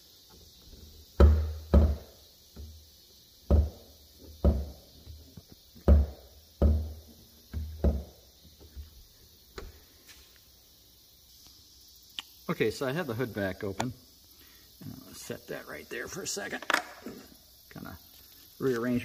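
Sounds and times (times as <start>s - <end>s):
car trunk lid thumping: 1.2s - 2.1s, 5.8s - 8.1s.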